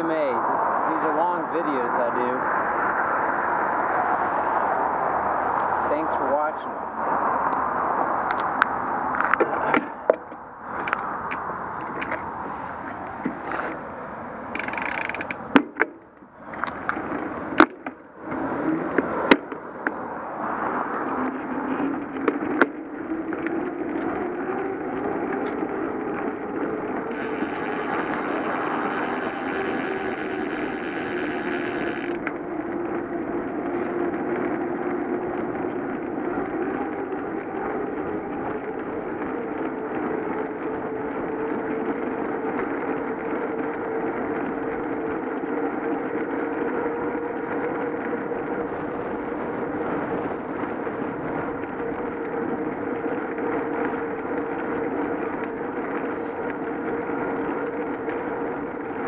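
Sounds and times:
bicycle tyre and wind noise: 0.0s - 59.0s
steady hum: 25.8s - 32.3s.

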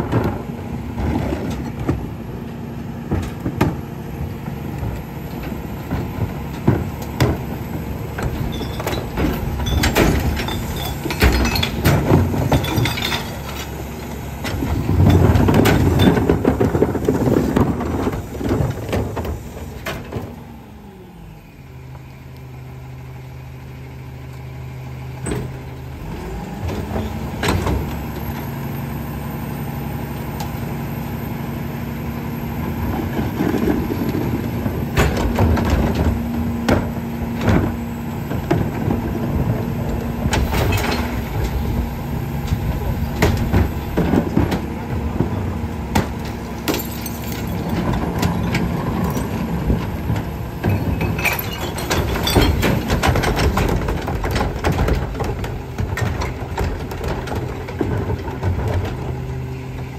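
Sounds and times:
carts banging against hopper: 0.0s - 20.4s, 32.6s - 59.9s
hydraulics working: 0.0s - 22.3s, 24.0s - 59.9s.

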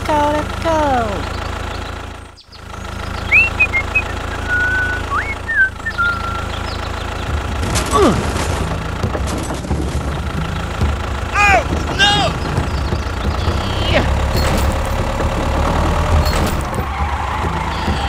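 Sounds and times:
tractor engine rumbling: 0.0s - 18.0s
high whistled chirps: 3.2s - 6.9s.

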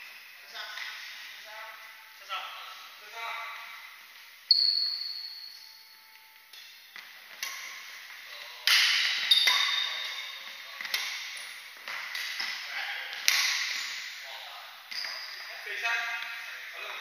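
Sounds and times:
rackets hitting shuttlecock: 6.5s - 8.0s, 8.6s - 14.1s.

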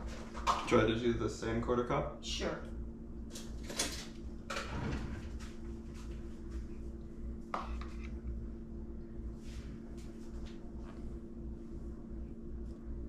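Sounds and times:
steady low hum: 0.0s - 13.0s
kitchen clatters and rustles: 3.3s - 5.6s.

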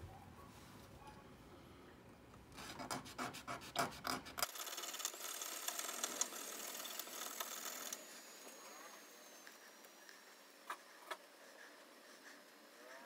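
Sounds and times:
file rasping on metal: 2.6s - 4.4s.

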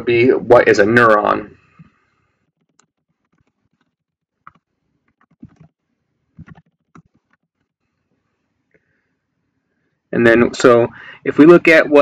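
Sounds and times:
computer keys clicking: 2.6s - 5.7s.

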